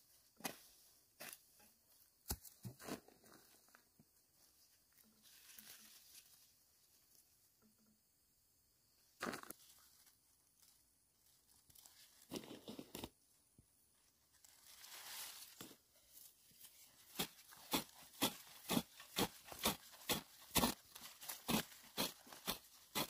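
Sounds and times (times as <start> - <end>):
fertilizer scattering on soil: 17.0 - 23.0
hoe chopping into dirt: 17.1 - 23.0.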